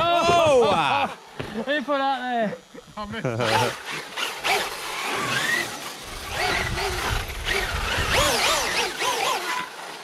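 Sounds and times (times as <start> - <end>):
toy car electric motor whining: 3.4 - 10.0.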